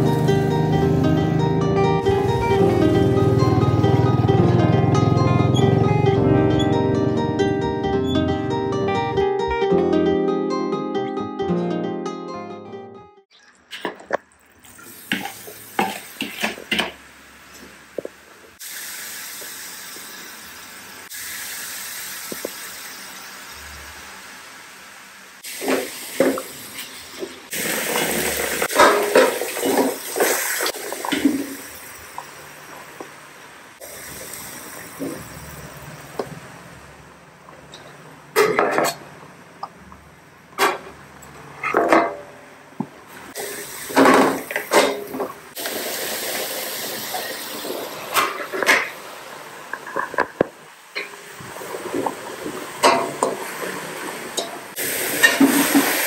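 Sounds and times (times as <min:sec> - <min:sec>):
meat sizzling in a wok: 0:14.8 - 0:36.2, 0:43.3 - 0:44.8, 0:45.5 - 0:49.8, 0:54.2 - 0:56.0.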